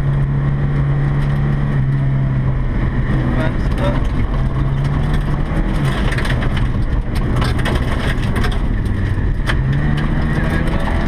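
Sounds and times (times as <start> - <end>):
car engine pulling hard: 0.0 - 11.0
sharp clicks from car: 3.7 - 11.0.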